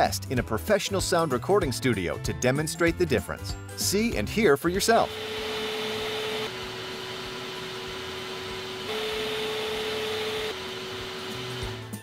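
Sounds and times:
suction motor high hum: 5.0 - 12.0
suction motor low hum: 5.0 - 12.0.

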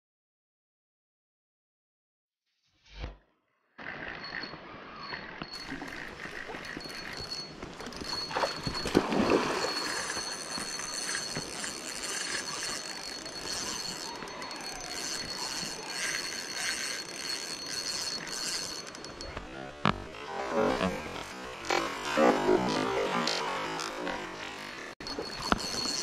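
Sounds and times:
thin high whine: 4.0 - 26.0
stream water flowing: 5.5 - 19.4.

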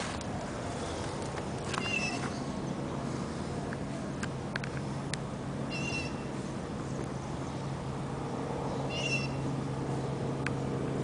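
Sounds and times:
steady low hum: 0.0 - 11.0
animal high cries: 8.9 - 9.4.

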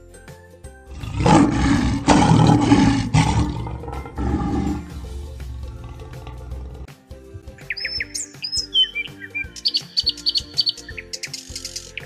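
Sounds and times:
light children's music: 0.0 - 12.0
lion roaring: 0.9 - 6.9.

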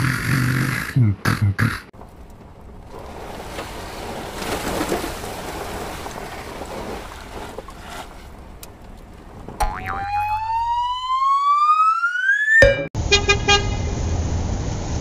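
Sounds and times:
rising siren-like tone: 9.7 - 12.9.

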